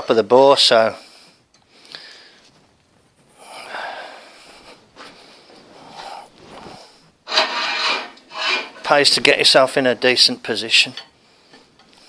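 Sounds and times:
man breathing heavily: 1.0s - 2.5s, 3.3s - 7.2s.

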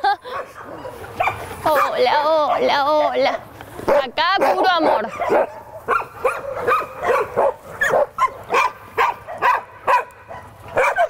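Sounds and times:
dogs barking and yipping: 0.0s - 11.0s.

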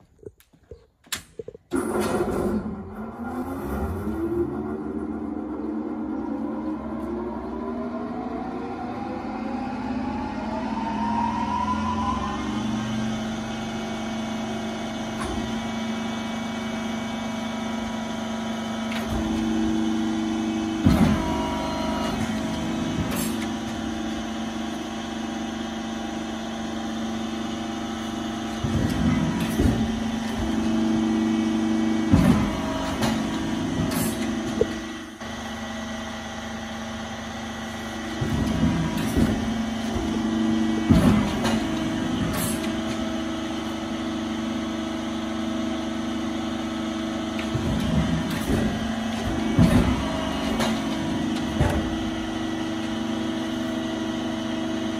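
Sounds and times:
pump motor humming: 11.7s - 54.9s
cutting beam knocks: 28.6s - 30.6s, 47.4s - 52.4s.

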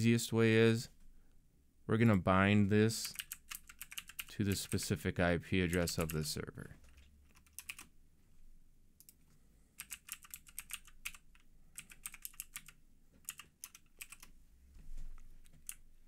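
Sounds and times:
keyboard typing: 3.0s - 4.8s, 6.8s - 7.9s, 9.8s - 14.3s, 15.4s - 15.8s.

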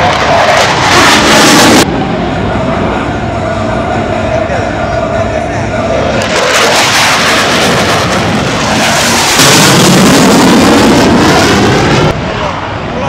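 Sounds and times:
fighter jet flying past: 0.0s - 13.0s.

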